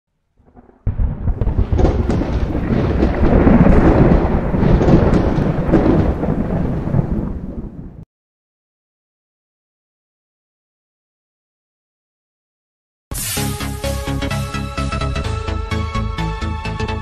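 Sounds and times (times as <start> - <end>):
crackling thunder-like rumble: 0.4 - 8.0.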